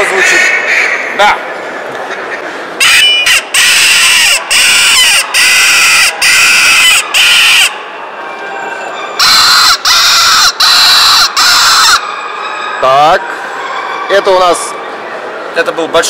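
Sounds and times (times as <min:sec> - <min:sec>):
predator call squealing cries: 0:09.2 - 0:12.0.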